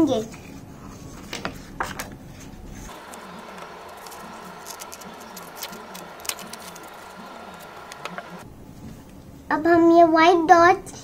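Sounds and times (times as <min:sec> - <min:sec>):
paper rustling: 0:01.1 - 0:08.4.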